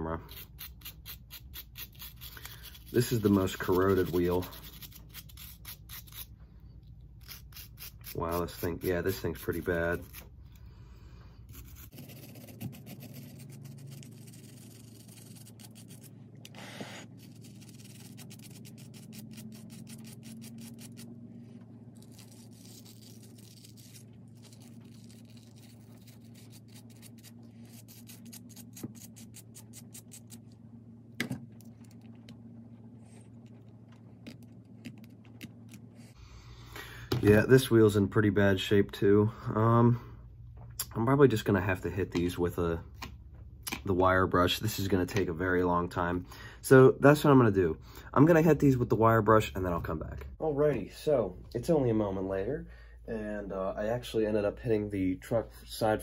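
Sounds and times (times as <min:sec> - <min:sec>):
brush and knife scratching metal: 0:00.3 - 0:06.3, 0:07.2 - 0:10.3, 0:11.5 - 0:21.1, 0:22.0 - 0:30.4.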